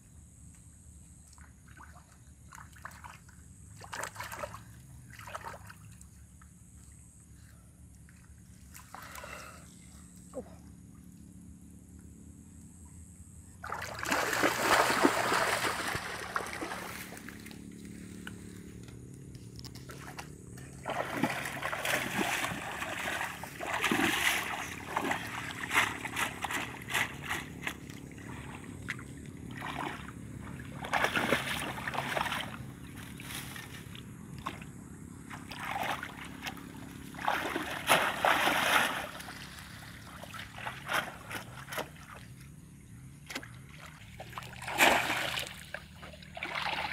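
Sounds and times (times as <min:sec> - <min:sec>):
shallow water splashing: 0:13.6 - 0:17.8, 0:19.7 - 0:42.5, 0:43.2 - 0:46.9.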